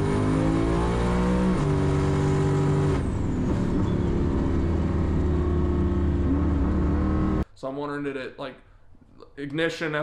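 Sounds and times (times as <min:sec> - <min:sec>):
turbocharged engine revving: 0:00.0 - 0:07.4.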